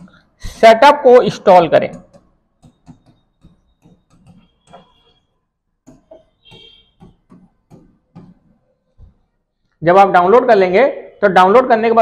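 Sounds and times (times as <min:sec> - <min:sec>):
marker writing on a whiteboard: 0:00.0 - 0:09.8.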